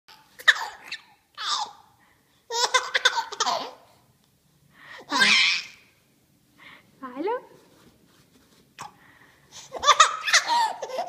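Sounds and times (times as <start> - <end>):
baby laughing: 0.4 - 1.9, 2.5 - 3.9, 5.1 - 5.8, 9.6 - 11.0.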